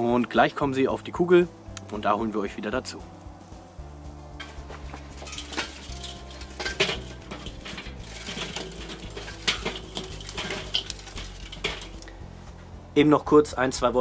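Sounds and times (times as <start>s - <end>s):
charcoal clattering into metal baskets: 4.3s - 12.2s.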